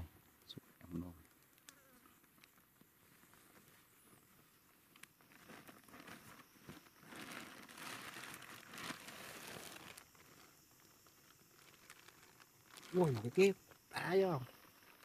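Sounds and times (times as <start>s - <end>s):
faint rustling and crinkling: 0.0s - 15.0s.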